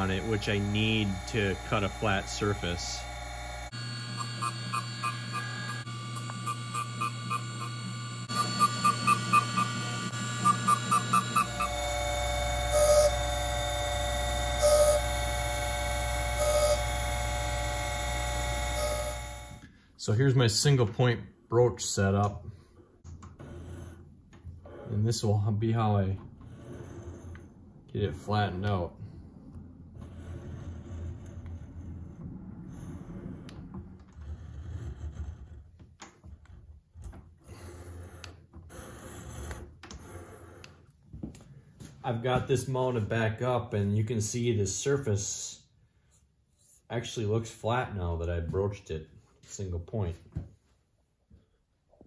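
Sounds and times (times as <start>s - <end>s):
cutter scraping inside metal casting: 0.0s - 19.6s, 29.9s - 36.6s
gritty grinding bursts: 0.0s - 19.6s
grinder motor hum: 0.0s - 19.8s.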